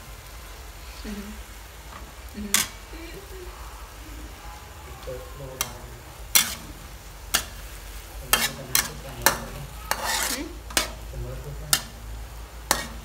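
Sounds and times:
low sizzle: 0.0 - 13.0
metal spatula scraping wok: 5.6 - 11.1, 12.6 - 13.0.

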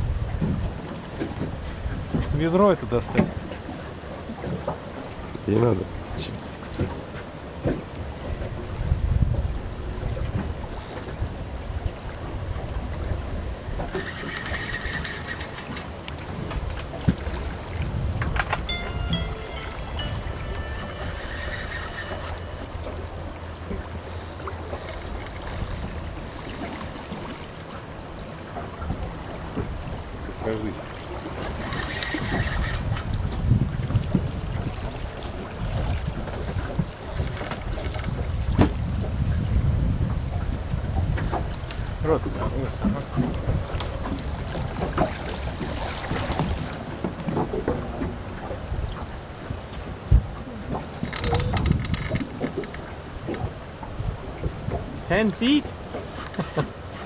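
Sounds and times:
wind buffeting microphone: 0.0 - 5.4, 6.0 - 55.1
river current rushing: 0.0 - 39.1, 43.0 - 57.0
boat motor humming: 0.0 - 39.5, 40.1 - 57.0.

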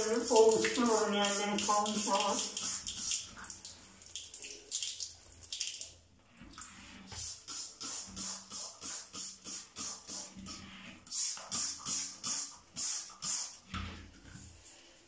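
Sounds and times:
spray bottle hissing squirts: 11.1 - 13.6.

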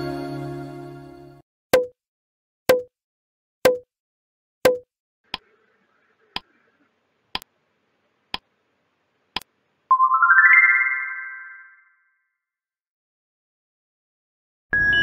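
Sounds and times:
countdown timer ticking: 3.7 - 3.9.

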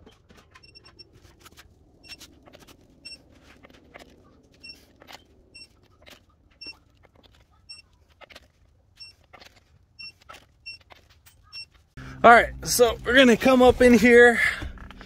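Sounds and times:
torque wrench beeping: 4.6 - 6.8, 9.0 - 11.9.

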